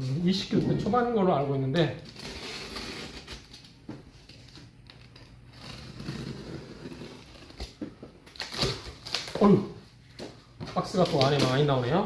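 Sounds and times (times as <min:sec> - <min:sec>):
knife slicing packing tape: 0:02.0 - 0:03.6, 0:05.2 - 0:09.4.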